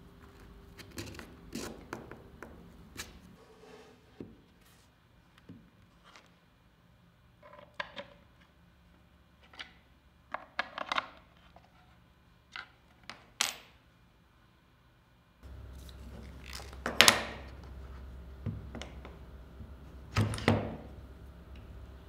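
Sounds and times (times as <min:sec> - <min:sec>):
steady low hum: 0:15.4 - 0:22.0.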